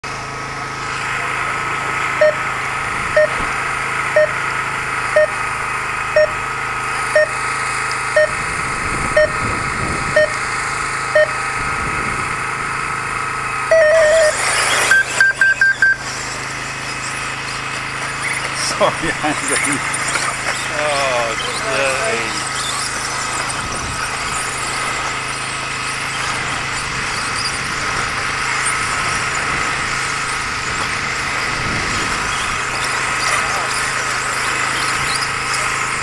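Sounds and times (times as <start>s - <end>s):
steady high-pitched whine: 0.1s - 36.0s
electronic start beeps: 2.2s - 2.5s, 3.2s - 3.4s, 4.2s - 4.4s, 5.1s - 5.4s, 6.2s - 6.4s, 7.1s - 7.4s, 8.1s - 8.4s, 9.1s - 9.5s, 10.1s - 10.5s, 11.1s - 11.4s, 13.6s - 16.4s
longer electronic tone: 2.2s - 3.5s, 4.1s - 4.4s, 5.1s - 5.4s, 6.1s - 6.4s, 7.0s - 7.4s, 8.1s - 11.9s, 13.5s - 17.2s.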